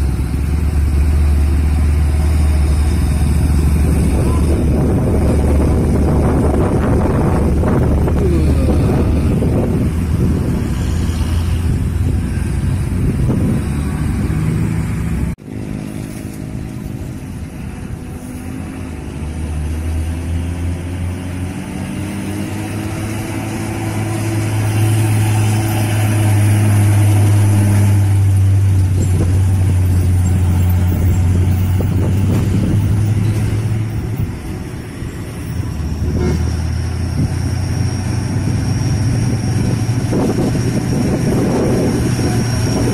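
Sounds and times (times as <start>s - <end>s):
diesel trucks passing: 0.0s - 42.9s
truck engine drone: 0.0s - 42.9s
motorcycles going by: 3.0s - 15.4s.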